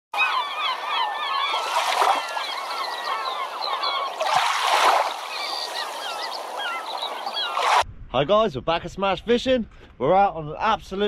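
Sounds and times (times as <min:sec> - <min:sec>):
flock of birds calling: 0:00.2 - 0:07.8.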